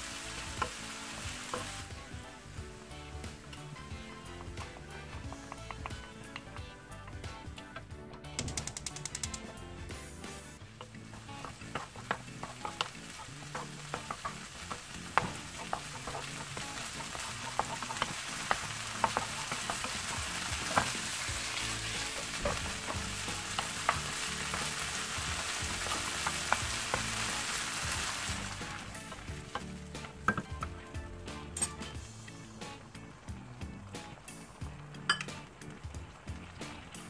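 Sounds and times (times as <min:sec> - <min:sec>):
meat sizzling in a frying pan: 0:00.0 - 0:37.0
wooden spoon scraping a pan: 0:00.2 - 0:02.4, 0:03.1 - 0:07.8, 0:09.4 - 0:30.6.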